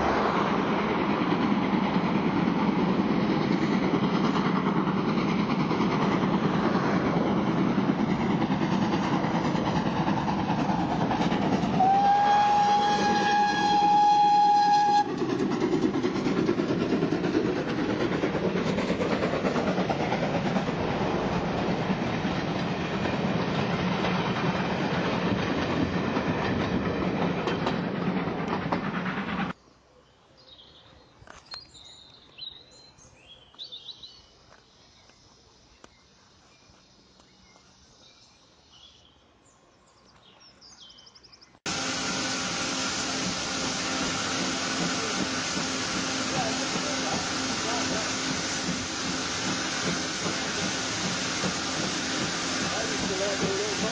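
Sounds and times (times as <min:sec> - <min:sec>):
train coaches clattering over rails: 0:00.1 - 0:29.6, 0:41.7 - 0:53.9
steam hissing from locomotive: 0:05.4 - 0:21.4, 0:41.7 - 0:53.9
small birds chirping: 0:29.6 - 0:41.6.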